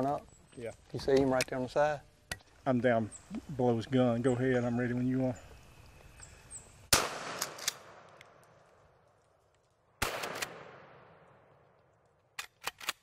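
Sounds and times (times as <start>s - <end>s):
shotgun firing with echo: 6.9s - 8.1s, 10.0s - 11.3s.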